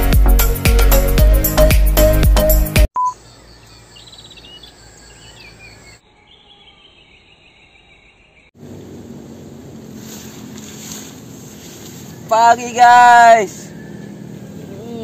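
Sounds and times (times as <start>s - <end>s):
music: 0.0s - 2.9s
short beep: 3.0s - 3.2s
trilled bird call: 3.0s - 8.5s
faint bird chirps: 3.0s - 8.6s.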